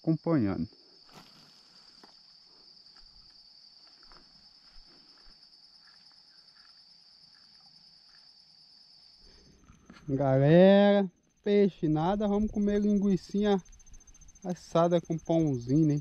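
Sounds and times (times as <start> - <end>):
high-pitched insect trill: 0.0 - 16.0.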